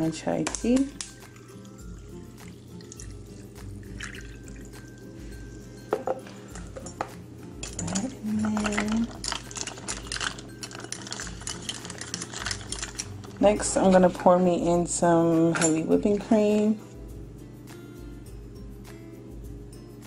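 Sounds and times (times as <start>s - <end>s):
quiet background music: 0.0s - 20.0s
tea poured over ice: 1.0s - 5.1s, 8.5s - 13.4s
ice clinking against plastic cup: 4.0s - 4.7s, 5.9s - 13.4s.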